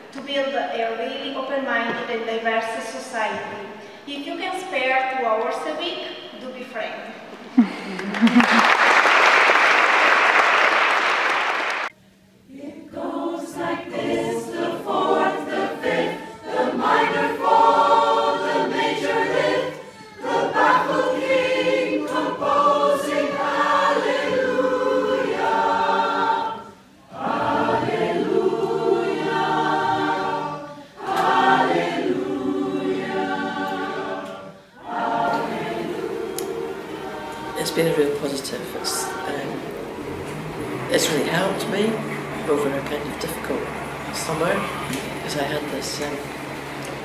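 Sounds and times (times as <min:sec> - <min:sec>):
applause: 0:07.8 - 0:11.9
mixed choir singing: 0:12.5 - 0:47.0.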